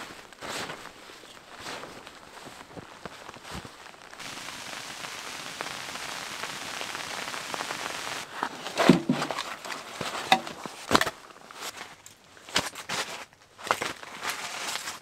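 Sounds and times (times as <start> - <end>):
snow pelting tent fabric: 0.0 - 15.0
firewood set down on floor: 8.3 - 11.2.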